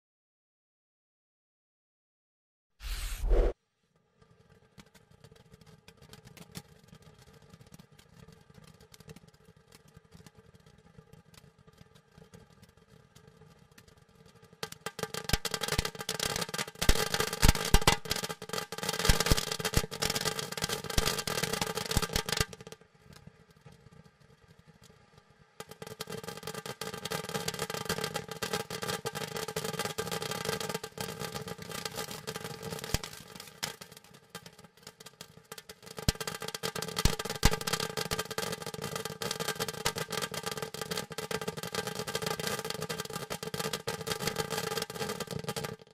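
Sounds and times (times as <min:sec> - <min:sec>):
sharp firework crack: 0:02.8 - 0:03.6, 0:19.1 - 0:20.0, 0:37.0 - 0:37.9
fountain firework crackling: 0:36.0 - 0:41.6.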